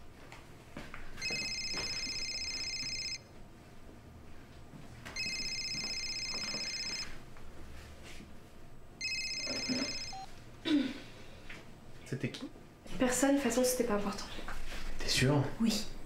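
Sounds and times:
mobile phone ringtone: 0:01.2 - 0:03.2, 0:05.2 - 0:07.2, 0:09.0 - 0:10.3.

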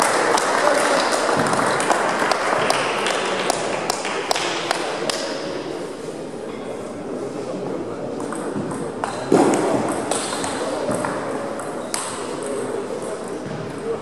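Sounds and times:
murmur of voices: 0:00.0 - 0:14.0
table tennis balls clicking: 0:08.2 - 0:13.4.

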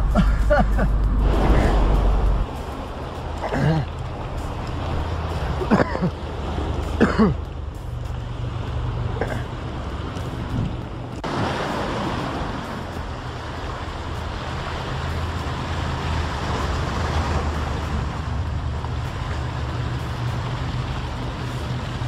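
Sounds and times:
car engine hum: 0:00.0 - 0:11.3
road noise inside car: 0:00.0 - 0:11.3, 0:12.5 - 0:22.0.

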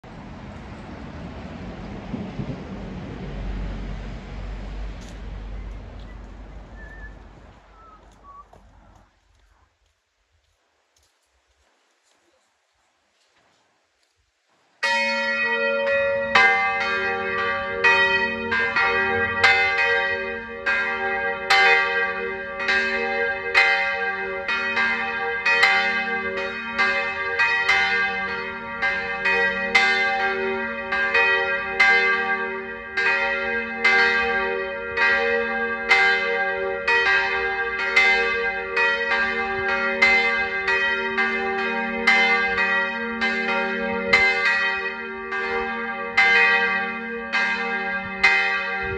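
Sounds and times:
church bells ringing: 0:14.8 - 0:48.9.

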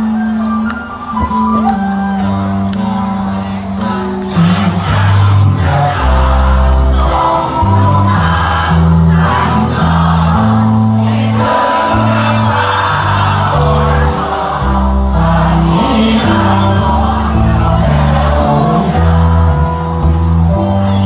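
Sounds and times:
acoustic guitar: 0:00.0 - 0:21.0
bass line of held notes: 0:00.0 - 0:21.0
crowd singing along: 0:00.0 - 0:21.0
keyboard: 0:00.0 - 0:21.0
lead vocalist singing: 0:02.8 - 0:21.0.

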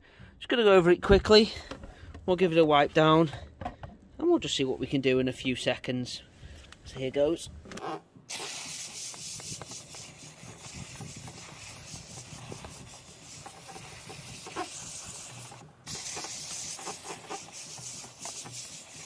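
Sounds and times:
brush rubbing on fabric: 0:08.3 - 0:19.0
steam cleaner hissing: 0:08.3 - 0:19.0.

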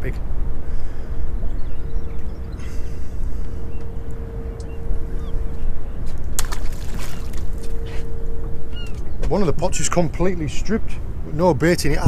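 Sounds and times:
faint hum: 0:00.0 - 0:12.0
wind buffeting microphone: 0:00.0 - 0:12.0.

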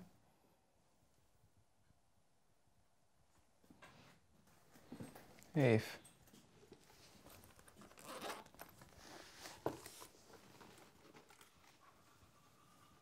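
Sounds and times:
rustling and crinkling: 0:03.4 - 0:13.0.

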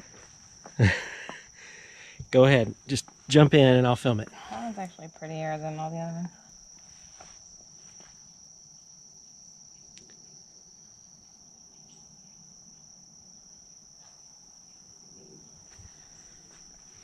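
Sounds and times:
insect trill: 0:00.0 - 0:17.0.

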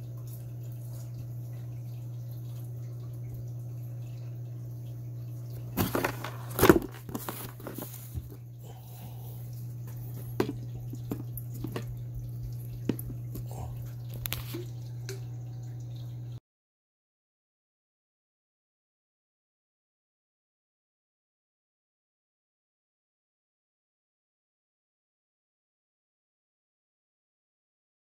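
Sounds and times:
steady low hum: 0:00.0 - 0:16.4
cardboard box rustling and knocking: 0:05.8 - 0:08.4.

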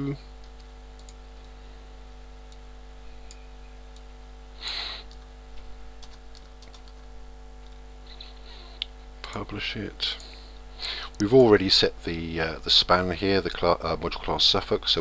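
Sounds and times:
electrical hum: 0:00.0 - 0:15.0
keyboard keystrokes: 0:06.0 - 0:07.1.

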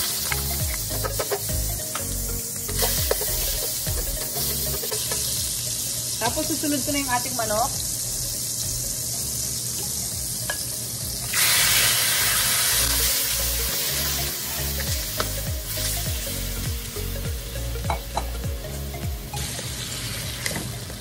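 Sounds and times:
chicken sizzling in butter: 0:00.0 - 0:17.1, 0:19.3 - 0:21.0
spatula scraping and tapping pan: 0:00.2 - 0:02.1, 0:02.7 - 0:05.4.

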